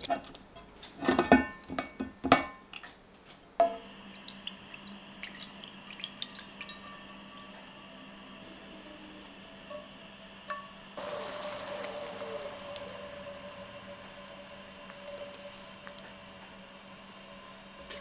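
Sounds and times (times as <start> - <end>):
liquid drips and splashes: 3.8 - 7.6, 11.0 - 16.1
stock pouring into a pan: 11.0 - 16.0.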